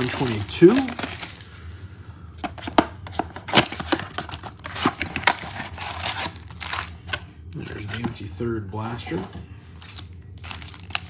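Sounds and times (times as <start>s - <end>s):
cardboard box tearing open: 3.5s - 6.9s.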